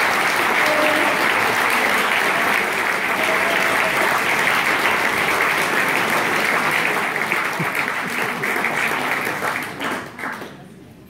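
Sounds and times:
audience applause: 0.0 - 10.8.

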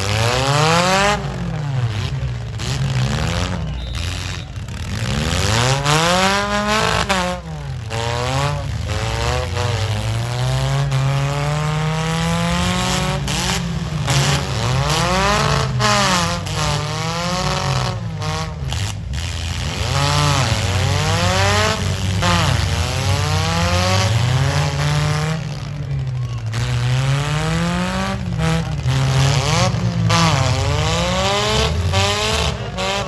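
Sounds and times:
car engines revving: 0.0 - 33.0.

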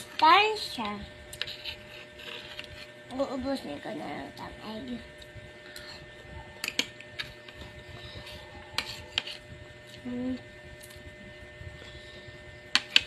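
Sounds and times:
spoon scraping plastic plate: 1.3 - 3.0, 7.2 - 9.4.

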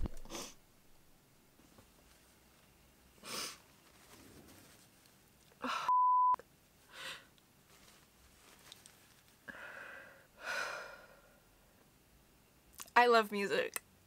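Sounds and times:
woman weeping: 5.6 - 6.0
censor bleep: 5.9 - 6.4.

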